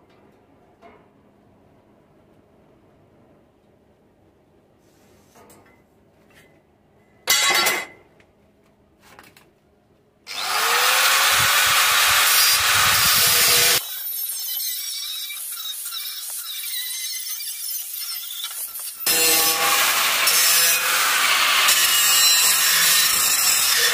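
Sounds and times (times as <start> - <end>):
angle grinder cutting sheet metal: 10.3 - 23.9.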